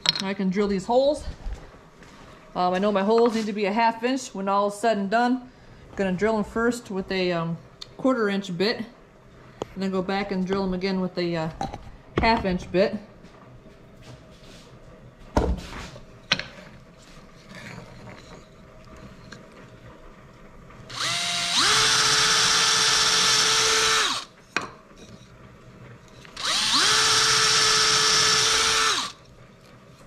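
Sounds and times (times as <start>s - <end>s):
power drill boring into wood: 20.9s - 24.3s, 26.4s - 29.2s.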